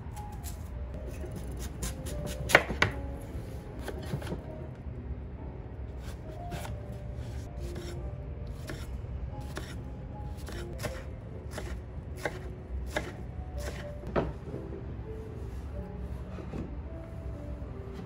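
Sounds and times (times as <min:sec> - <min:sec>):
knife chopping on wooden board: 0:01.8 - 0:03.0, 0:09.5 - 0:09.8, 0:10.4 - 0:14.3.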